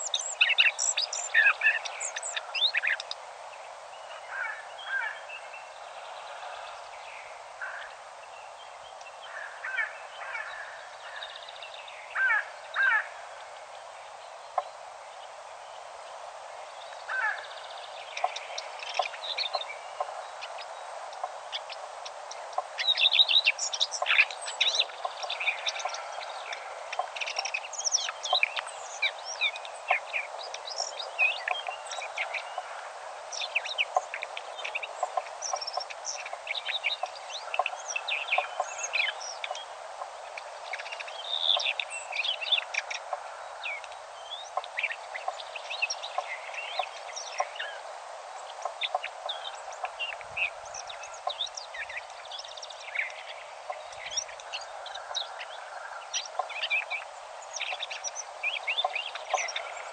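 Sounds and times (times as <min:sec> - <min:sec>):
songbirds singing: 0:00.0 - 0:59.9
steady background hiss: 0:00.0 - 0:59.9.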